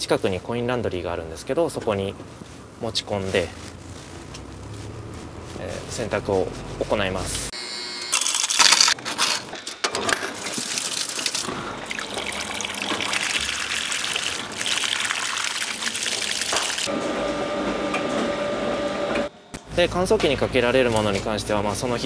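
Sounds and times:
washing machine hum: 0:09.5 - 0:22.0
water pouring into washing machine: 0:10.2 - 0:16.9.

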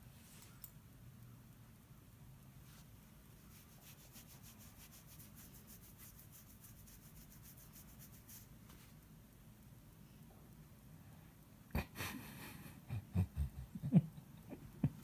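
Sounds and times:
fingers scratching dog fur: 0:03.4 - 0:08.5.

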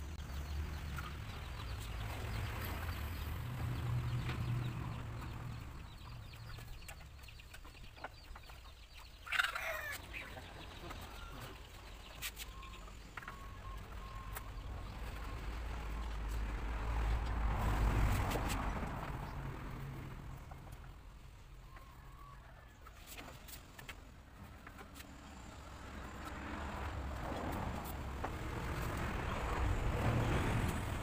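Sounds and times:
chicken call: 0:09.3 - 0:10.4.

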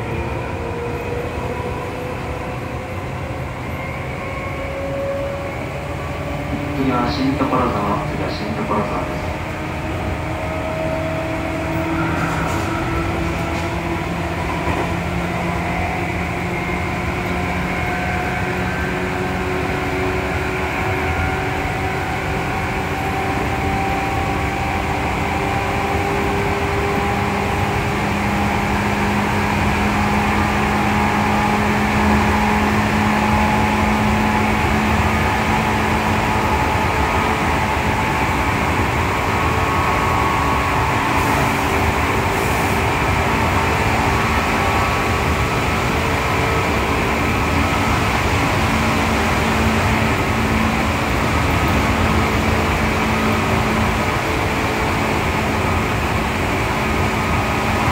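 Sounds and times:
wheels rumbling on rail: 0:00.0 - 0:57.9.

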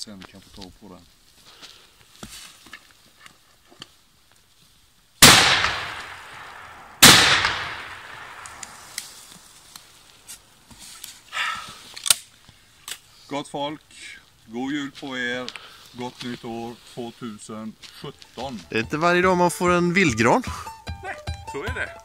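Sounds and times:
shotgun shots echoing: 0:05.2 - 0:09.0.

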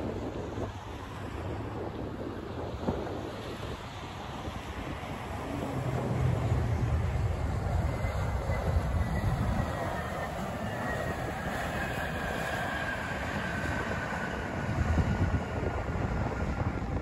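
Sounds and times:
jet engines roaring with whine: 0:00.0 - 0:17.0.

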